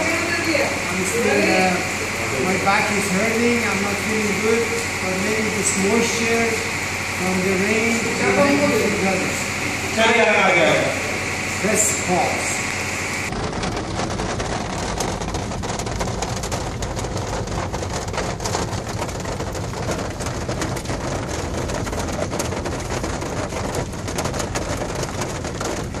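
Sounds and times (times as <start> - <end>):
heavy rain on car roof: 0.0 - 26.0
low car rumble: 0.0 - 26.0.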